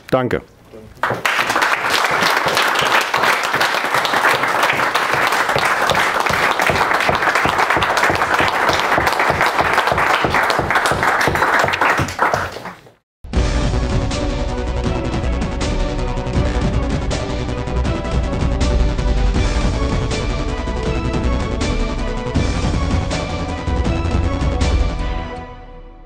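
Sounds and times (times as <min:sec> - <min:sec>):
crowd applauding: 0:01.0 - 0:13.0.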